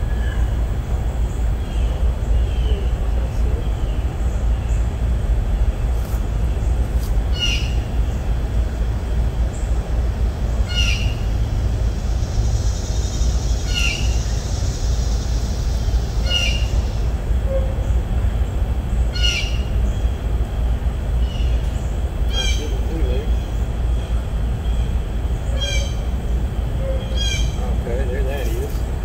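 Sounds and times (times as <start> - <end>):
bird calling: 5.8 - 8.6, 10.4 - 28.9.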